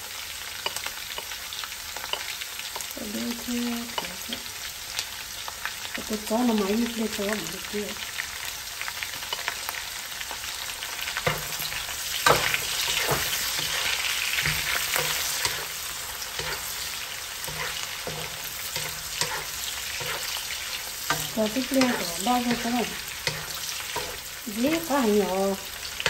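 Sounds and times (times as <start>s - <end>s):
meat sizzling while stir-fried: 0.0s - 26.0s
stirring scrapes and knocks: 12.2s - 24.3s.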